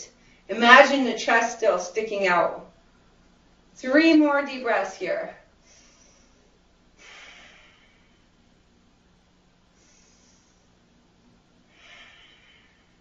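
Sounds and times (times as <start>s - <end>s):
woman breathing deeply: 5.6s - 8.5s, 9.7s - 10.9s, 11.6s - 13.0s.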